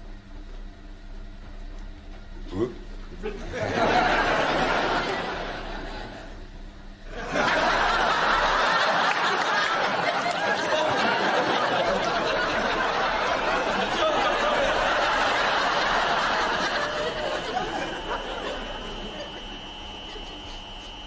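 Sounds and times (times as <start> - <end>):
audience laughing: 3.1 - 21.0.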